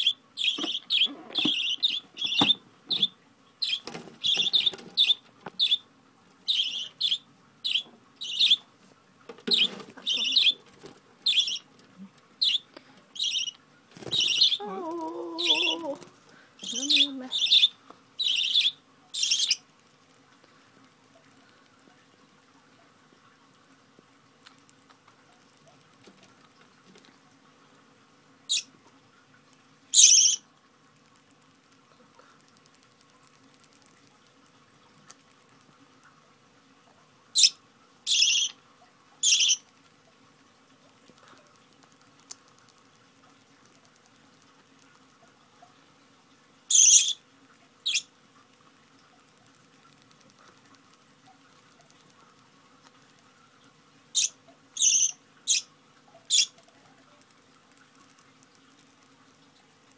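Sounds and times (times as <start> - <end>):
budgerigars chirping and squawking: 0.0 - 5.8, 6.5 - 8.6, 9.5 - 11.7, 12.4 - 14.7, 15.4 - 16.0, 16.6 - 19.6, 28.5 - 28.7, 30.0 - 30.4, 37.4 - 38.6, 39.2 - 39.6, 46.7 - 47.2, 47.9 - 48.1, 54.2 - 55.7, 56.3 - 56.5
budgerigar harsh calls: 9.5 - 10.6, 14.2 - 14.6, 16.6 - 19.6, 38.1 - 38.5, 46.7 - 47.2, 54.2 - 55.7.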